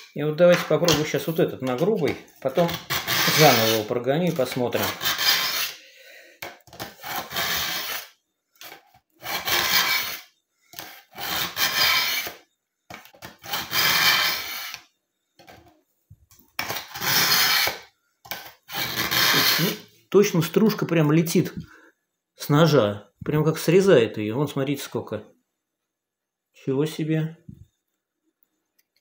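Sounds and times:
knife scraping through sharpener: 0:01.7 - 0:05.8, 0:06.8 - 0:12.4, 0:13.2 - 0:14.8, 0:16.6 - 0:19.8.

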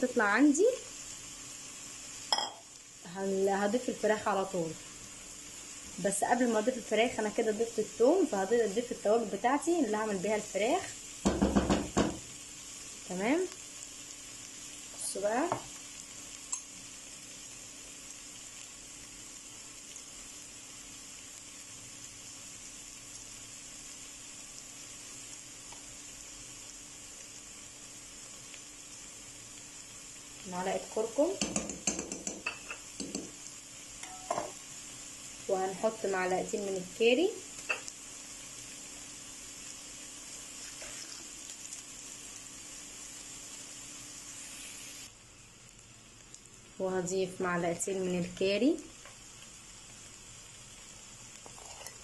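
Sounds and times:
onions sizzling in oil: 0:00.0 - 0:52.0.

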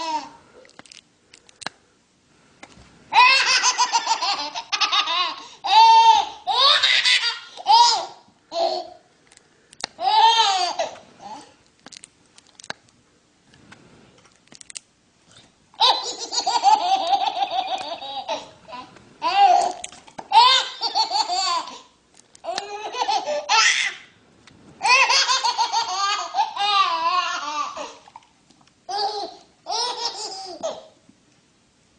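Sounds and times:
baby laughing: 0:03.1 - 0:09.0, 0:10.0 - 0:11.5, 0:15.8 - 0:24.0, 0:24.8 - 0:28.1, 0:28.9 - 0:31.0.

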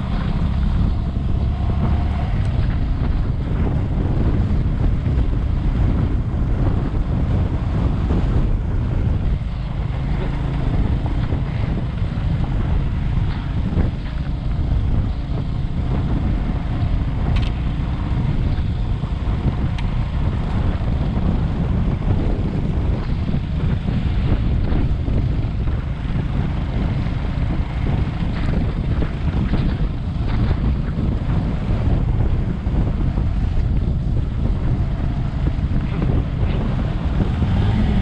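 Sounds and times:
motorcycle rumble: 0:00.0 - 0:38.0
wind buffeting microphone: 0:00.0 - 0:38.0.

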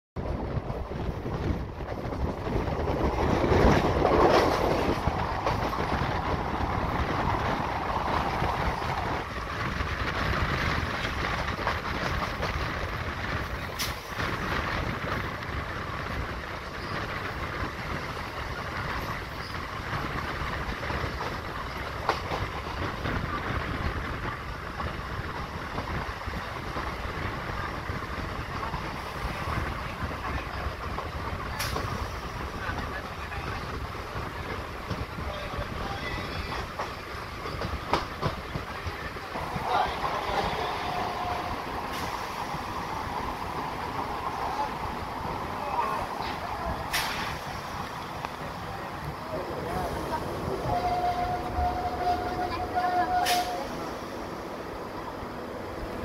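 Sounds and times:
train wheels rushing on rails: 0:00.2 - 0:56.0.

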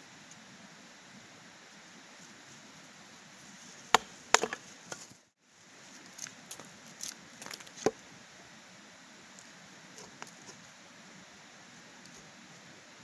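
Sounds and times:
wood chopping knocks: 0:04.0 - 0:04.6.

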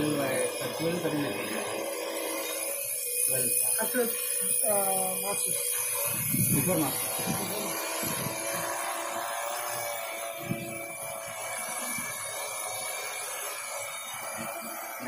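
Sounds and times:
drone propellers humming: 0:00.0 - 0:15.0
wind rumbling on microphone: 0:06.1 - 0:08.4.

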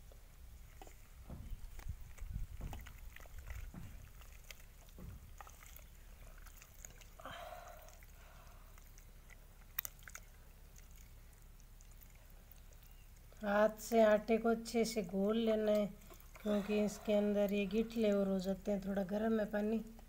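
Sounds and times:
soft low thumps: 0:00.0 - 0:06.4
hand kneading wet batter: 0:00.0 - 0:20.0.

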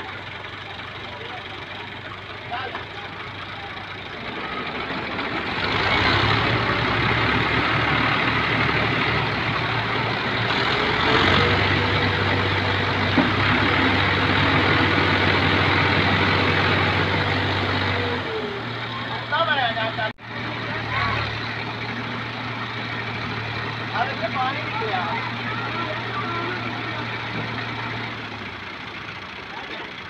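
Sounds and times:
tractor diesel engine straining: 0:00.0 - 0:30.0.

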